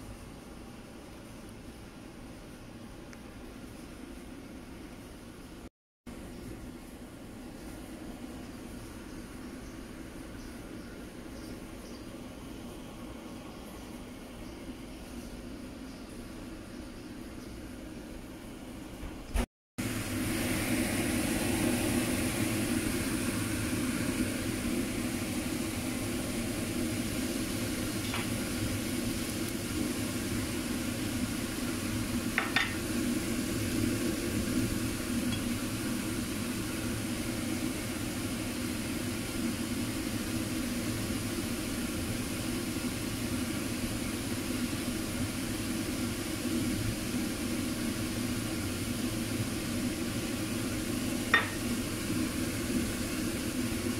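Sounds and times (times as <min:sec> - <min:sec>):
steady low hum: 0:00.0 - 0:53.9
food sizzling in frying pan: 0:19.8 - 0:53.9.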